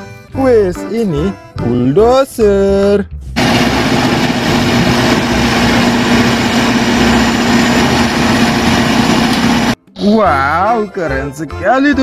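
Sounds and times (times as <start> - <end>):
bulldozer diesel engine droning: 3.4 - 9.8.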